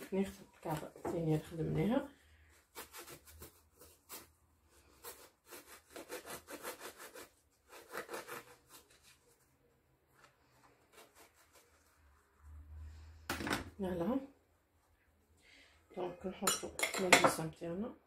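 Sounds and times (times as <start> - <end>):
knife sawing bread roll: 2.6 - 9.4, 10.6 - 12.3.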